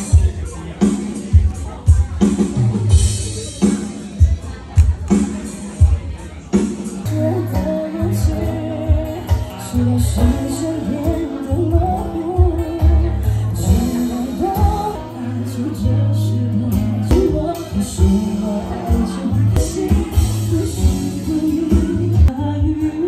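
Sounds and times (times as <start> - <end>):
live band playing pop: 0.0 - 23.0
woman singing: 7.0 - 23.0.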